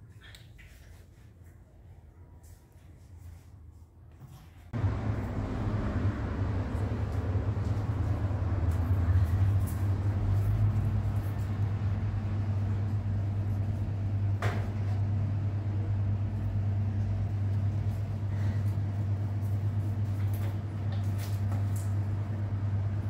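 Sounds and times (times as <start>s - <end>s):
low motor hum: 4.7s - 23.0s.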